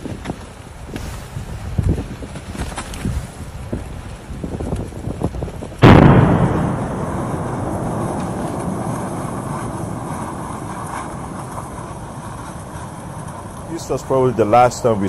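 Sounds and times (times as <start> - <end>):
eruption noisy rush: 0.0 - 15.0
volcanic eruption blast: 3.4 - 15.0.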